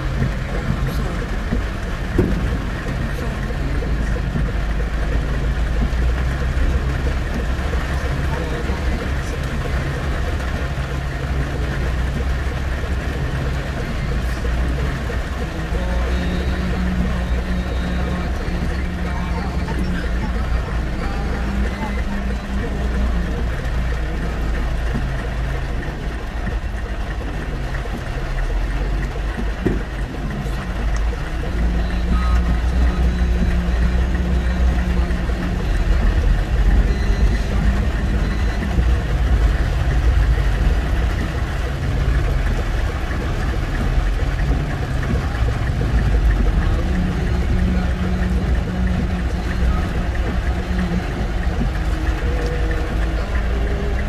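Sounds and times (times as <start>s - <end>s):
car driving through floodwater: 0.0s - 54.0s
engine and tyres low hum: 0.0s - 54.0s
heavy rain on a car: 0.0s - 54.0s.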